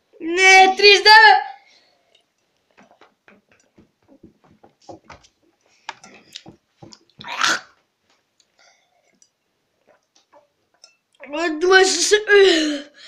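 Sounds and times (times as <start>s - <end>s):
person gulping water: 6.0s - 7.8s, 9.7s - 10.9s.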